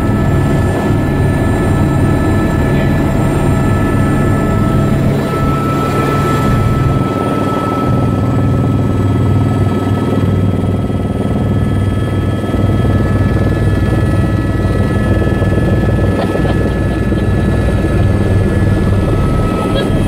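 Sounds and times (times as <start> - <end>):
helicopter rotor beating: 0.0 - 20.0
high-pitched engine whine: 0.0 - 20.0.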